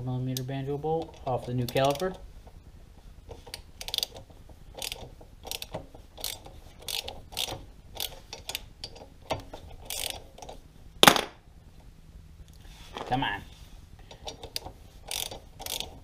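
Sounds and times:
socket ratchet clicking: 0:03.5 - 0:09.1, 0:09.8 - 0:10.6, 0:14.1 - 0:16.0.

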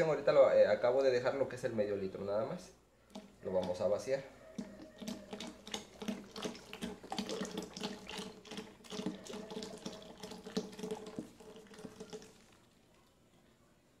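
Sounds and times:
milk pouring and gurgling: 0:03.1 - 0:13.2.

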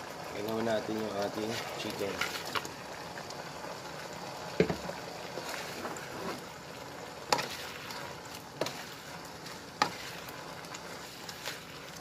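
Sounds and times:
low sizzle: 0:00.0 - 0:12.0
spatula stirring in wok: 0:01.2 - 0:02.8, 0:04.6 - 0:12.0.

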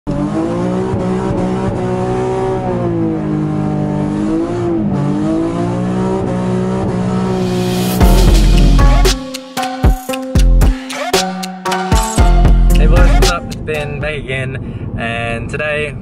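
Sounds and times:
car engine and exhaust revving: 0:00.1 - 0:10.3.

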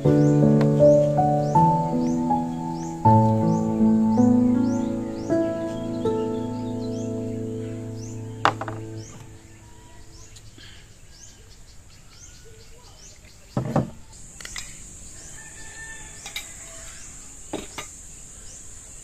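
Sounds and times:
small birds chirping: 0:00.0 - 0:19.0
brief knock: 0:08.4 - 0:09.3.

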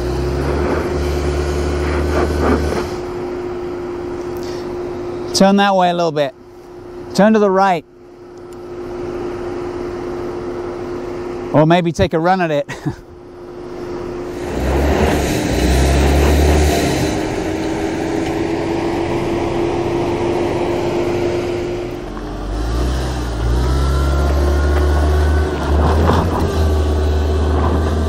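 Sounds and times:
car engine revving hard: 0:00.0 - 0:03.4, 0:14.2 - 0:28.0.

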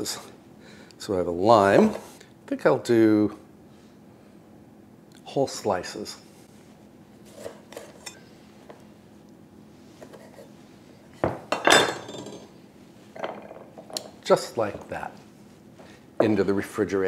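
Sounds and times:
knife and glassware clattering: 0:11.2 - 0:12.5, 0:13.2 - 0:14.0.

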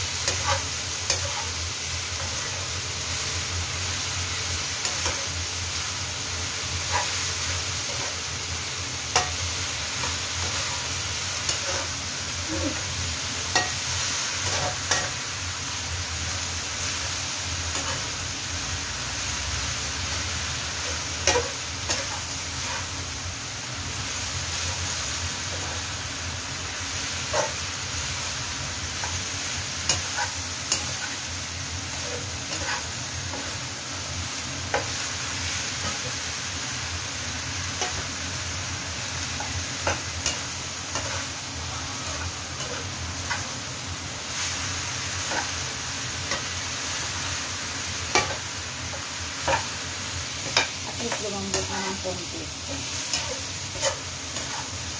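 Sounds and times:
vegetables sizzling in a wok: 0:00.0 - 0:54.9.

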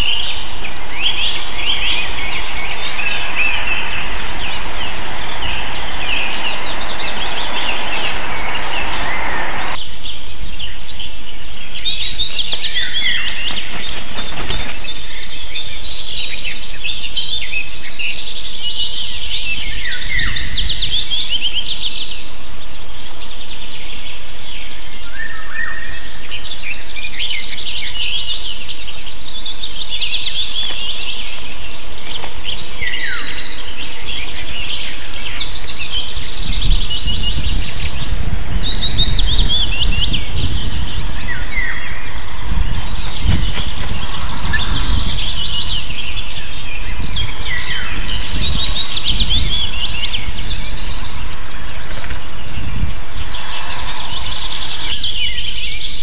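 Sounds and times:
low rumble: 0:00.0 - 0:09.8, 0:36.2 - 0:56.0.

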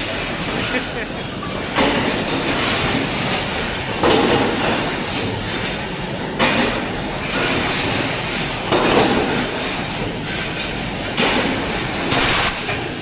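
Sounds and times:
constant machine din: 0:00.0 - 0:13.0.

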